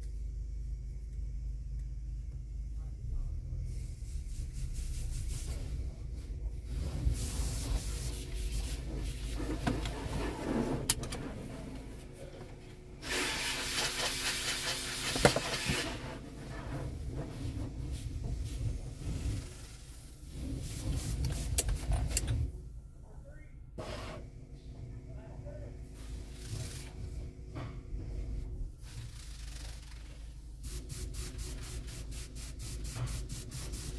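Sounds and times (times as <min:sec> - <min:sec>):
low machinery rumble: 0:00.0 - 0:13.1, 0:15.8 - 0:30.7
water spray hissing on car: 0:03.7 - 0:05.8, 0:06.7 - 0:10.8, 0:13.0 - 0:21.6, 0:26.0 - 0:27.1, 0:28.8 - 0:33.9.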